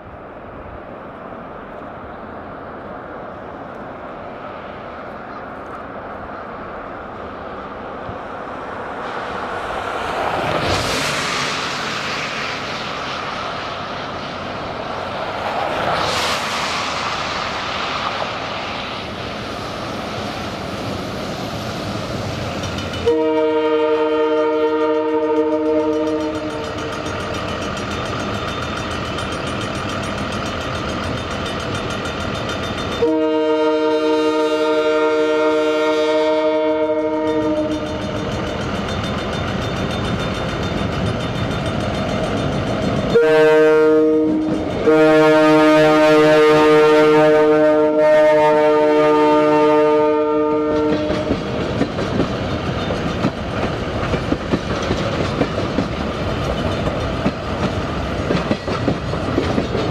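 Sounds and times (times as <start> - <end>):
train rumbling: 0.0 - 59.9
locomotive air horn blasts: 23.0 - 26.7, 33.0 - 38.1, 43.1 - 51.4.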